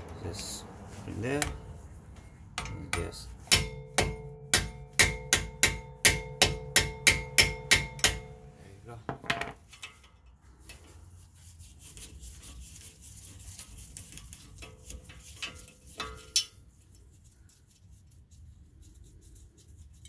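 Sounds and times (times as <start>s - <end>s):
hammer striking metal: 2.6s - 8.5s.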